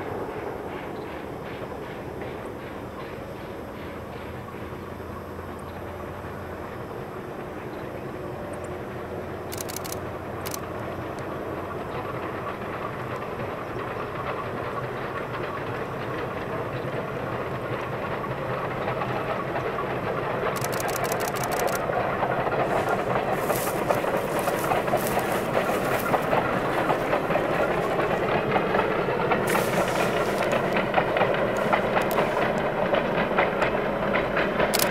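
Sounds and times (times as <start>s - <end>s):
steam locomotive running: 0.0s - 34.9s
wheels clicking over rail joints: 9.5s - 34.9s.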